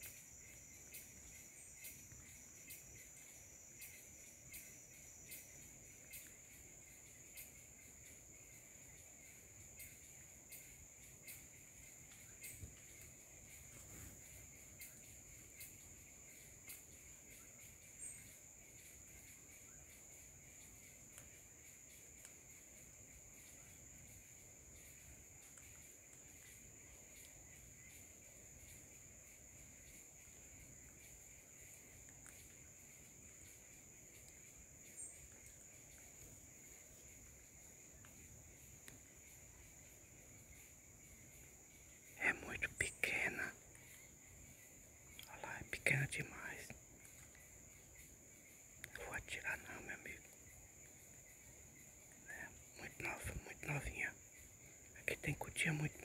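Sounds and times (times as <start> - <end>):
faint ticks: 0.0 - 56.0
high-pitched insect chorus: 0.0 - 56.0.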